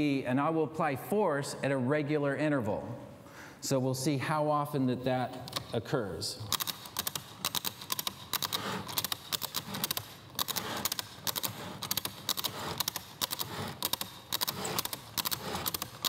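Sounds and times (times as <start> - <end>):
camera shutters clicking: 6.5 - 16.0.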